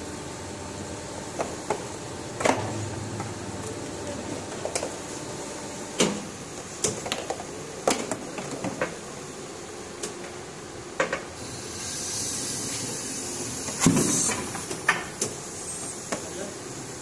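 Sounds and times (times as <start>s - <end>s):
steady high hiss: 7.6s - 17.0s.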